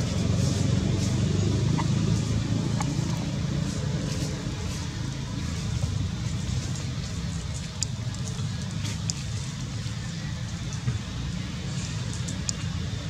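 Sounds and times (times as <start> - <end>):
low outdoor rumble: 0.0 - 13.0
faint clicks: 7.6 - 9.3.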